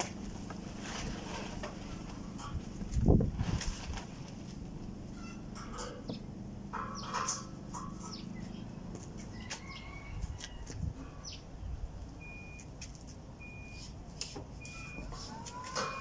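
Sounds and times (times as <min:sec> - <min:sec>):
birds chirping: 0:05.1 - 0:12.6.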